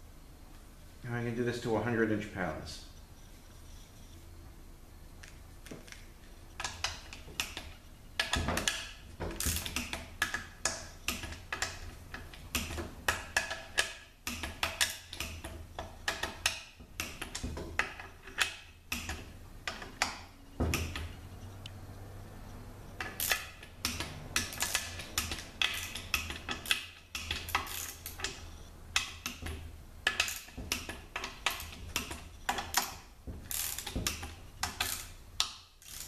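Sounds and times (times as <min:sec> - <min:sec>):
torque wrench clicking: 0:23.0 - 0:28.4, 0:29.0 - 0:36.0.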